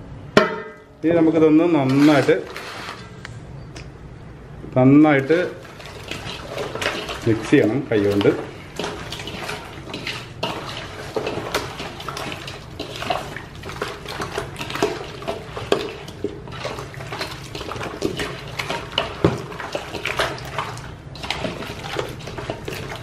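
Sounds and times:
wet squelching and slapping: 5.2s - 23.0s
meat knocking against metal bowl: 6.1s - 23.0s.

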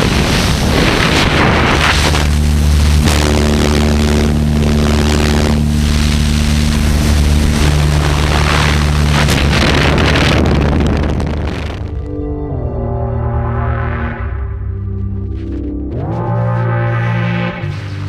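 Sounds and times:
wind rushing on microphone: 0.0s - 12.6s
propeller aircraft engine droning: 0.0s - 18.0s.

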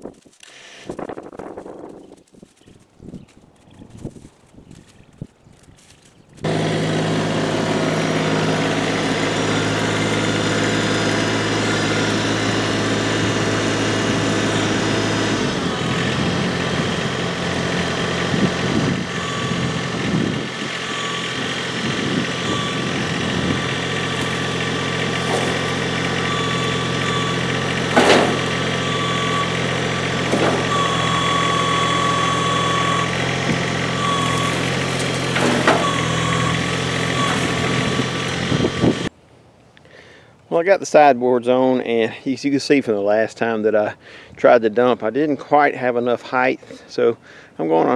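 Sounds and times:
tractor diesel engine running: 3.5s - 39.1s.

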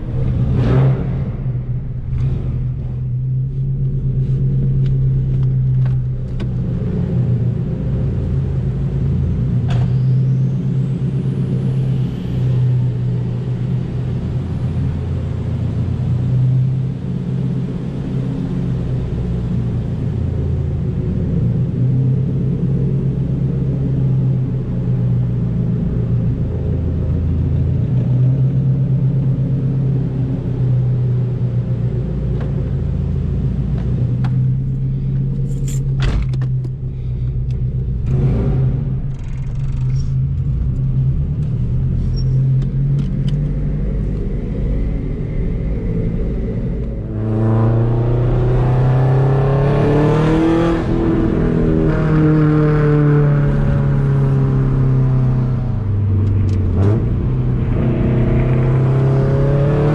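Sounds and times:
car engine idling: 12.8s - 47.6s.

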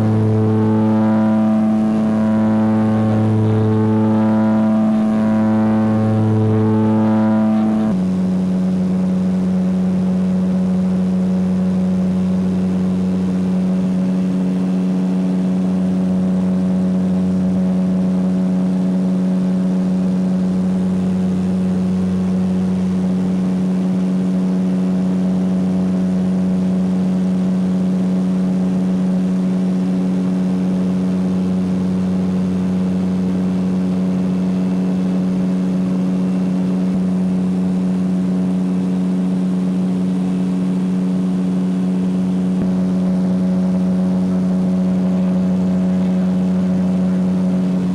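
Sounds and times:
aircraft engines droning: 0.0s - 8.0s.

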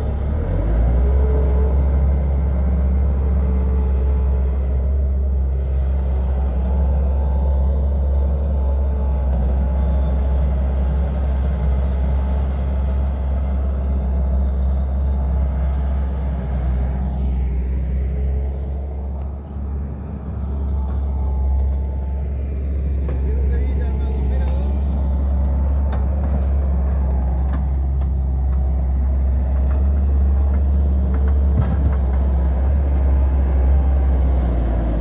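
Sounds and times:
diesel engine rumbling: 0.0s - 35.0s.

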